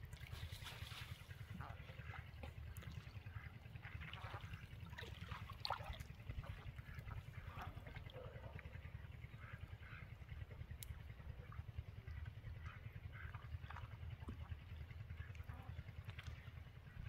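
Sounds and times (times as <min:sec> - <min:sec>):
water trickling and splashing: 0:00.0 - 0:08.7, 0:13.2 - 0:16.6.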